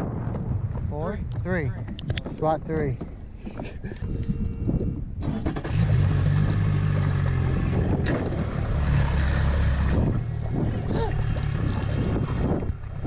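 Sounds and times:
outboard motor running: 0:03.5 - 0:13.0.

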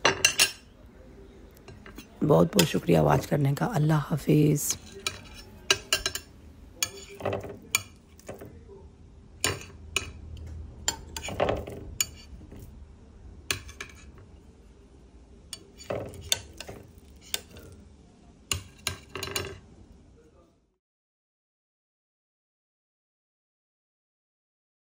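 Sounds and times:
metal spoon scraping glass dish: 0:04.7 - 0:08.3, 0:10.9 - 0:12.6, 0:13.5 - 0:14.2, 0:15.6 - 0:17.8.

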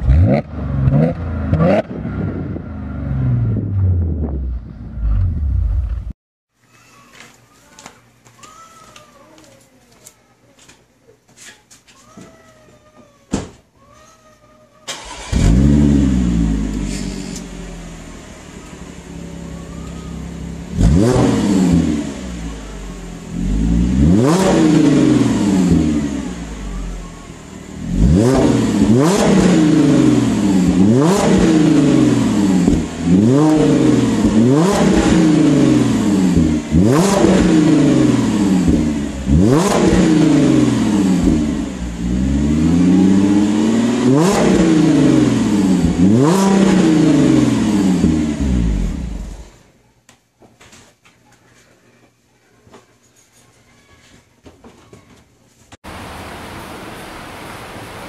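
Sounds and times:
car engine idling and revving: 0:00.0 - 0:06.2, 0:14.9 - 0:49.6.

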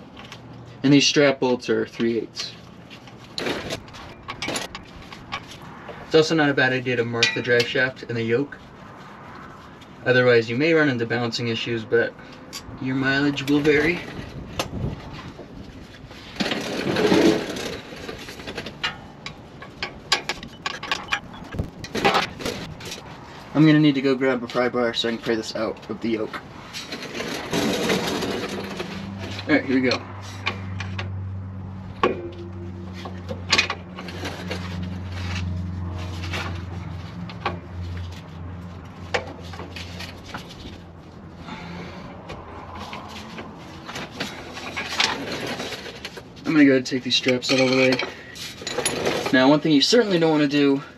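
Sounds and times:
metal clinks and scrapes: 0:02.4 - 0:06.1, 0:06.8 - 0:08.0, 0:16.2 - 0:23.2, 0:26.6 - 0:31.1, 0:42.7 - 0:49.4
scraping rustle: 0:02.4 - 0:11.8, 0:12.8 - 0:30.8, 0:32.3 - 0:50.7
sharp metal knocks: 0:31.9 - 0:33.8.

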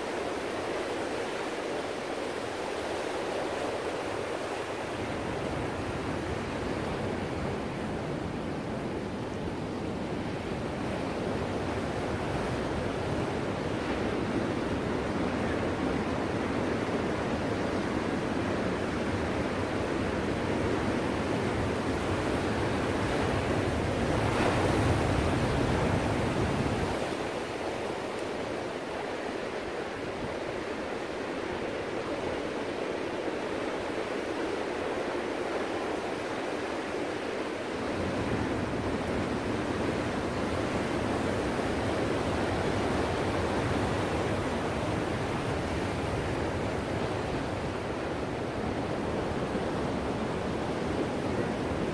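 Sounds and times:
waves breaking: 0:19.3 - 0:51.9.

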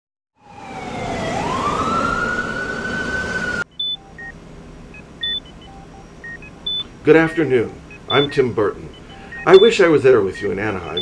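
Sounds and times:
emergency vehicle siren wailing: 0:00.4 - 0:04.2
traffic noise: 0:00.4 - 0:11.0
patient monitor beeps: 0:03.7 - 0:11.0.

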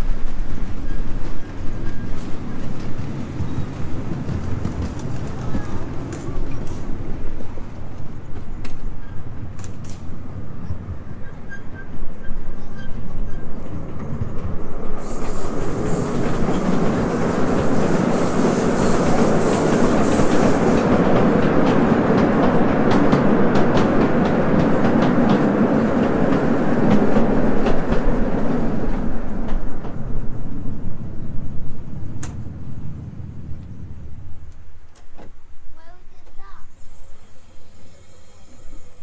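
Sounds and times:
miniature train rumbling: 0:00.0 - 0:39.0
rail clicks: 0:00.0 - 0:39.0
high hiss: 0:14.9 - 0:20.9, 0:36.6 - 0:39.0.

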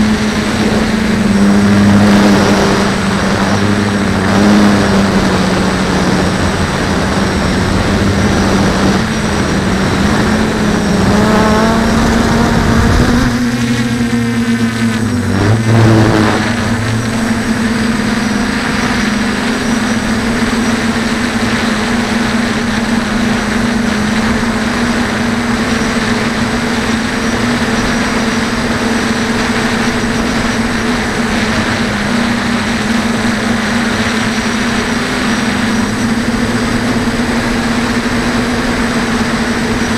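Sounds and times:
rushing noise: 0:00.0 - 0:27.6
drone propellers humming: 0:00.0 - 0:39.9.

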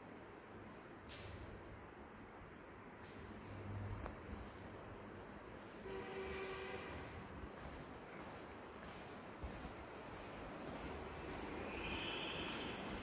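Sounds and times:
cricket chirping: 0:00.0 - 0:13.0
outdoor hiss: 0:00.0 - 0:13.0
short horn-like tone: 0:05.8 - 0:07.2.

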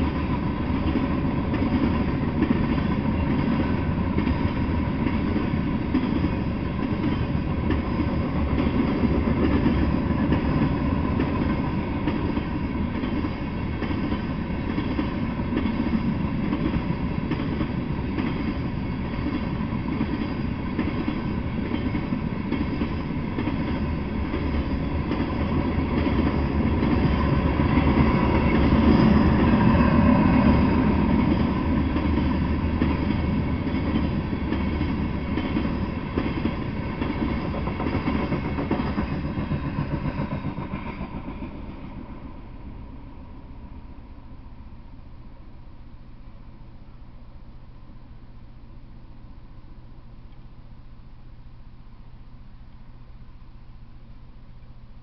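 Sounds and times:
freight train wheels clattering: 0:00.0 - 0:42.2.

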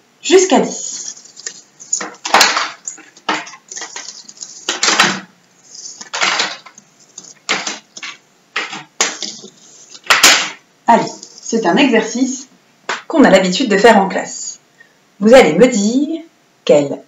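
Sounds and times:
small tiles clattering: 0:00.7 - 0:11.6.

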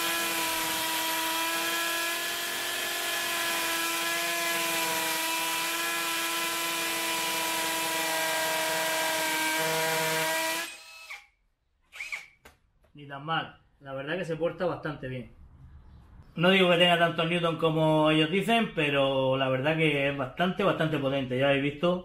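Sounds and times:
hammer drill drilling into concrete: 0:00.0 - 0:11.3, 0:11.9 - 0:12.4.

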